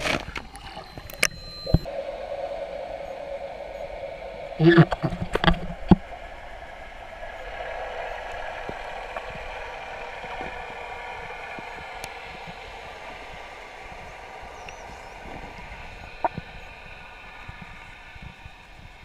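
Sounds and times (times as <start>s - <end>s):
underwater drone and hiss: 0.0s - 19.0s
faint clicks: 7.3s - 19.0s.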